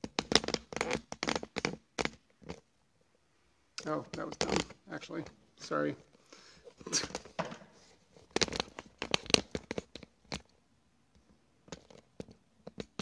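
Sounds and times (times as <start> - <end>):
phone handling clicks and rubs: 6.7 - 10.6.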